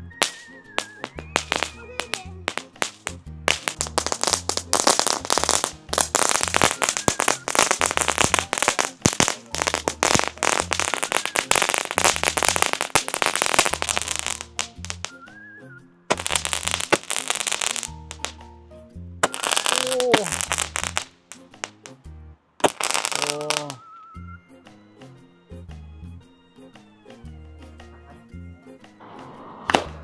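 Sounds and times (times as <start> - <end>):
fireworks crackling and popping: 0.0 - 15.2, 16.1 - 18.5, 19.2 - 22.0, 22.6 - 23.9, 29.0 - 30.0
background music with bass line: 0.0 - 29.0.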